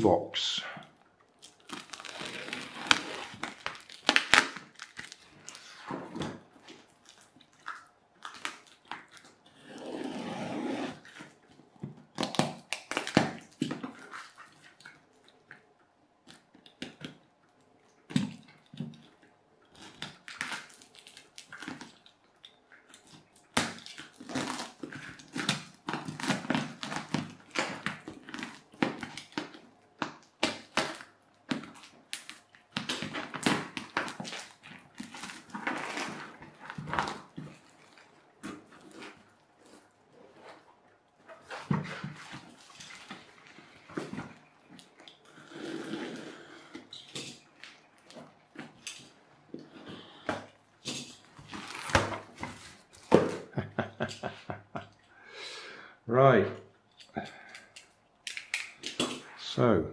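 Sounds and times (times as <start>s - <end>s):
plastic wrapping crinkling: 1.3s - 9.5s, 11.0s - 15.5s, 18.4s - 46.1s, 46.7s - 54.3s
tape tearing rasps: 1.4s - 11.4s, 12.1s - 14.4s, 19.7s - 22.0s, 22.9s - 39.8s, 50.8s - 53.2s.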